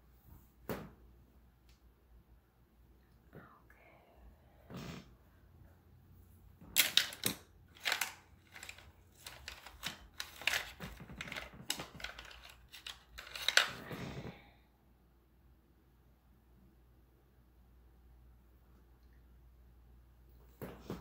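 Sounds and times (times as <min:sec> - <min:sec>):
small hard objects clicking: 0:06.8 - 0:13.8.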